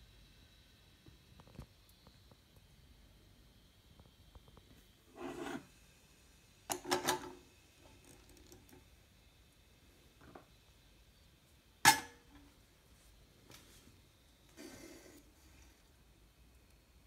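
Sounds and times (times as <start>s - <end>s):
cup scraping on drip tray: 5.1s - 5.7s.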